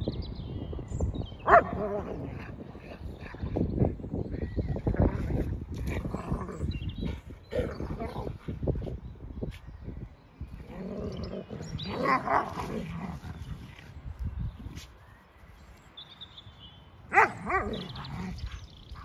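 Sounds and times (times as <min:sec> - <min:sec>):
dogs barking and growling: 0:01.4 - 0:03.6, 0:10.6 - 0:13.5, 0:17.1 - 0:19.0.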